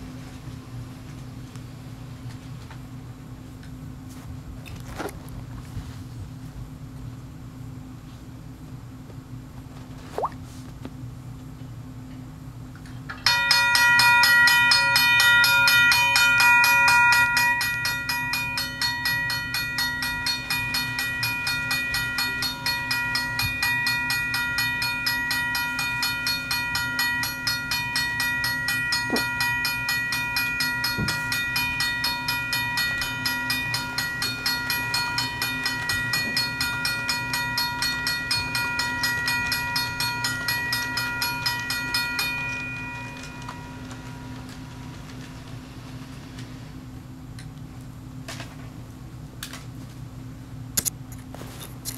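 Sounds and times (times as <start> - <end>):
railroad crossing bell ringing: 13.1 - 45.2.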